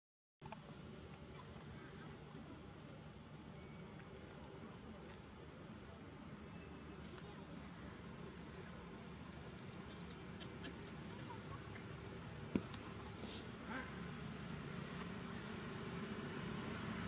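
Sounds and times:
outdoor background hiss: 0:00.4 - 0:17.0
bird chirping: 0:00.8 - 0:04.1, 0:06.0 - 0:13.3.

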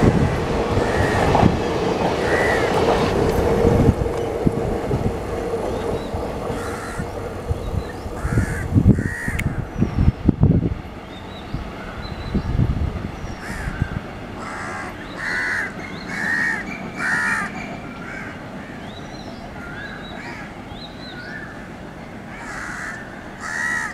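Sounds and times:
train wheels rumbling and clattering: 0:00.0 - 0:23.8
crows cawing: 0:00.8 - 0:01.3, 0:02.2 - 0:02.8, 0:06.5 - 0:07.1, 0:08.2 - 0:09.5, 0:13.4 - 0:18.8, 0:19.6 - 0:20.5, 0:22.3 - 0:23.9.

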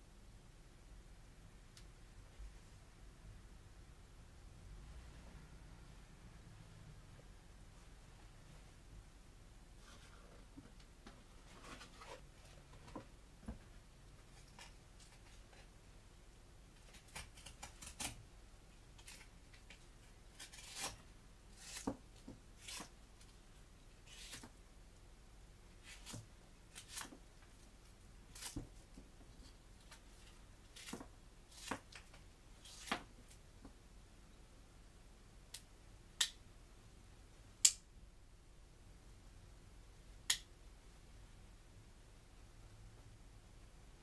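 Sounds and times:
knife cutting cardboard: 0:20.3 - 0:23.0.

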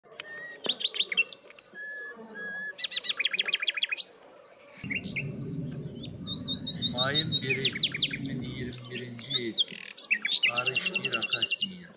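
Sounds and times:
songbird singing: 0:00.2 - 0:11.9
low steady hum: 0:04.8 - 0:09.6.

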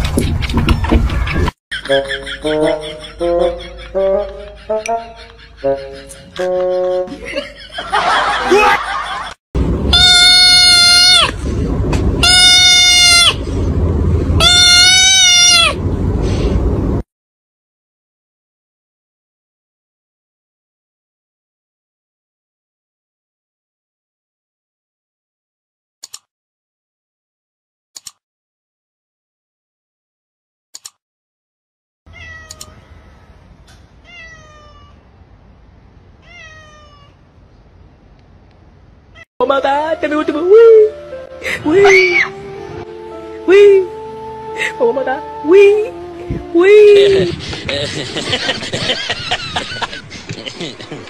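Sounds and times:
kitten meowing: 0:09.9 - 0:11.4, 0:12.2 - 0:13.4, 0:14.4 - 0:15.8, 0:32.1 - 0:33.1, 0:34.0 - 0:35.0, 0:36.2 - 0:37.2.

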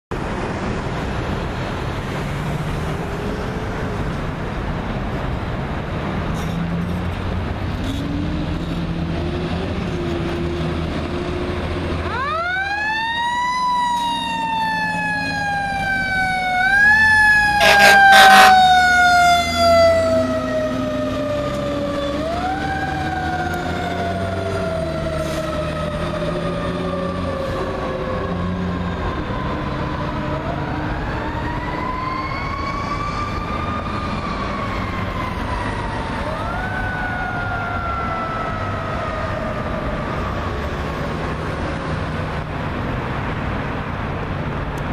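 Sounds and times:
heavy truck engine: 0:00.1 - 0:44.9
traffic rumble: 0:00.1 - 0:44.9
mechanical siren wailing: 0:08.1 - 0:41.1
air horn blasts: 0:17.6 - 0:18.7.

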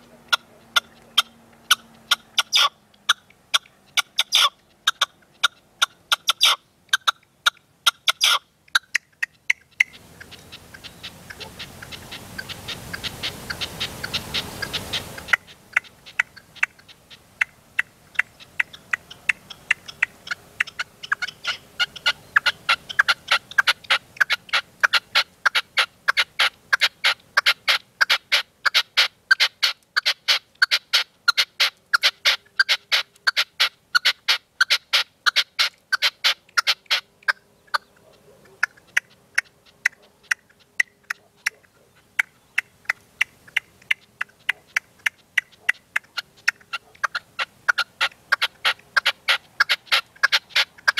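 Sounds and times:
hiss: 0:11.2 - 0:15.5.

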